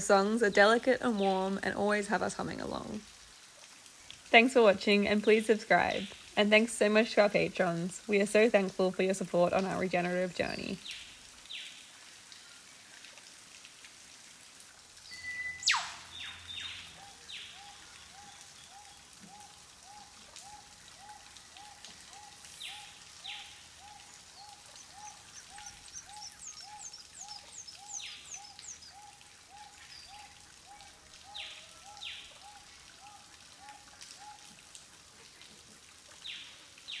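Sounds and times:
high falling chirps: 0:15.1 - 0:16.9
sharp sweeping calls: 0:15.1 - 0:18.4.

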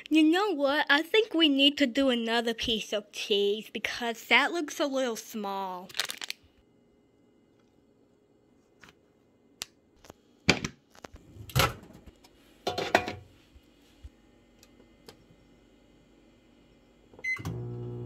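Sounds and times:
kitchen clicks and knocks: 0:12.6 - 0:13.3.

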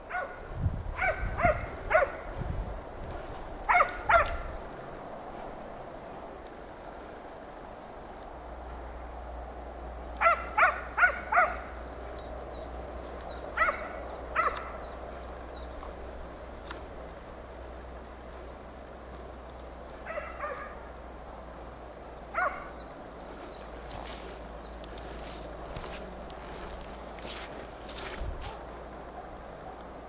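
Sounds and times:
dog barking: 0:00.1 - 0:00.4, 0:01.0 - 0:02.3, 0:03.7 - 0:04.4, 0:10.2 - 0:11.6, 0:13.6 - 0:14.8, 0:20.1 - 0:20.8, 0:22.3 - 0:22.8
small birds chirping: 0:11.0 - 0:16.0, 0:22.4 - 0:29.1.

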